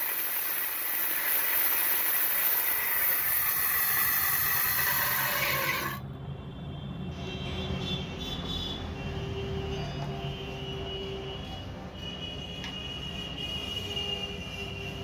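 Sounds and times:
angle grinder grinding steel: 0.0 - 6.0.

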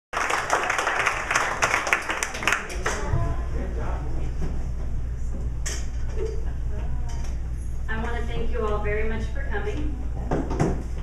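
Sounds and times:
audience applauding: 0.1 - 3.2.

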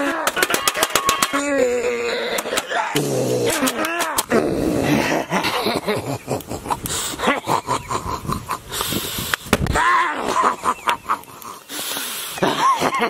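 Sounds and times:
man making frantic vocal noises: 0.0 - 5.8, 9.7 - 11.4
sharp clicks and crackles: 0.2 - 1.5, 3.4 - 4.3, 6.3 - 7.0, 10.8 - 11.7.

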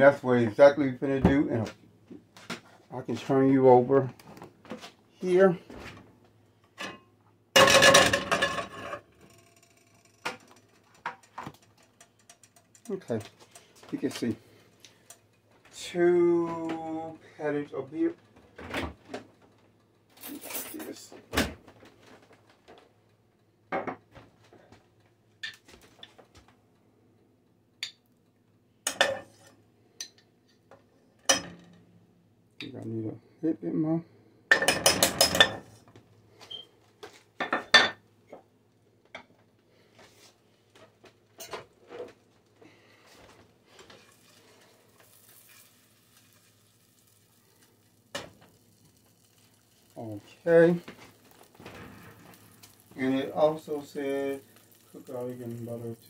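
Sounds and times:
butter sizzling faintly: 42.6 - 56.0.

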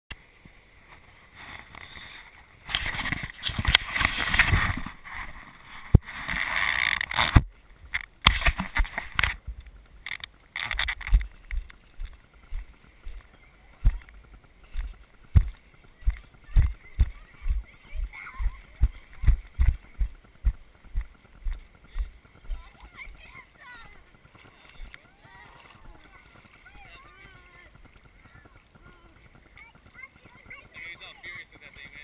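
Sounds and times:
low thumps of carried camera: 2.7 - 23.3
wind buffeting camera microphone: 2.8 - 30.8.

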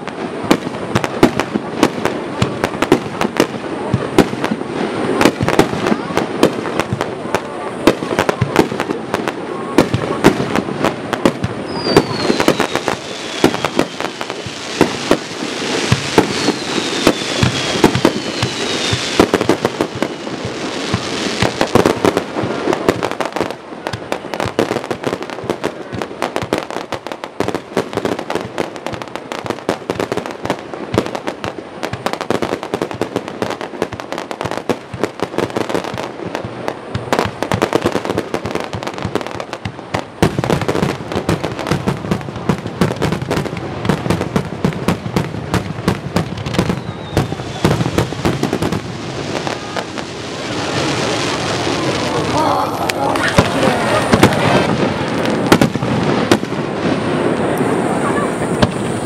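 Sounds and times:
fireworks bangs and crackling: 0.0 - 59.0
falling firework whistles: 11.2 - 26.5, 46.2 - 52.4.

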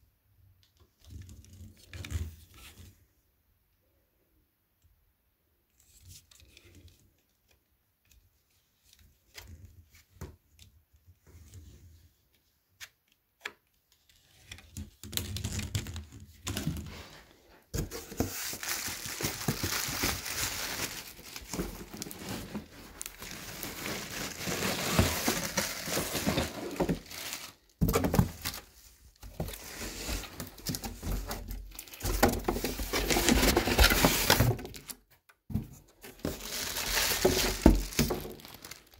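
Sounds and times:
cardboard rustling and scraping: 15.5 - 38.9
plastic bag crinkling: 18.3 - 27.7, 36.2 - 38.9.

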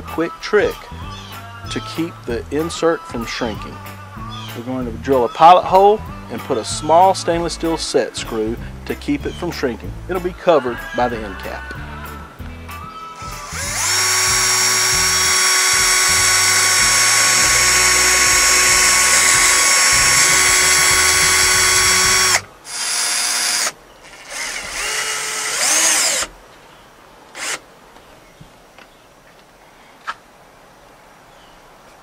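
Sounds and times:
cordless drill drilling: 13.2 - 26.4, 27.4 - 27.6.

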